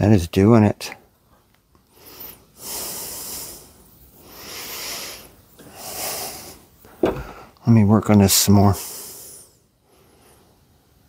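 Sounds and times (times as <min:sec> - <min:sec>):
person breathing heavily through nose: 0:01.9 - 0:07.6, 0:08.8 - 0:10.6.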